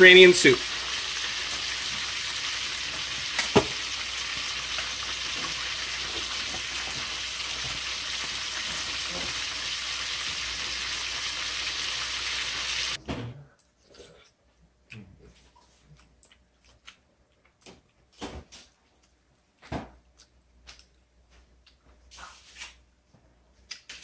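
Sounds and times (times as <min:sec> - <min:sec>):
soup simmering with sizzling hiss: 0:00.0 - 0:13.0.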